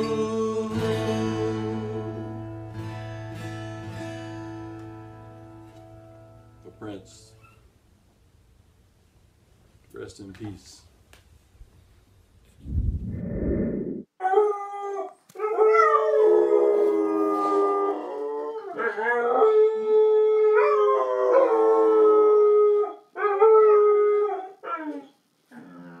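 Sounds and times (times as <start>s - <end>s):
low rumble: 12.5s - 14.0s
dogs howling: 14.2s - 25.1s.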